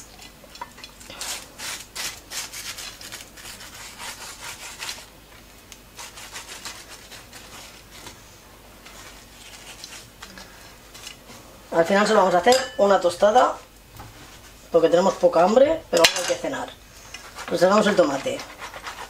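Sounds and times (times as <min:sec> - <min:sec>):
garlic scraping on toast: 0:01.0 - 0:05.1, 0:06.0 - 0:08.2, 0:08.8 - 0:10.3, 0:17.2 - 0:19.0.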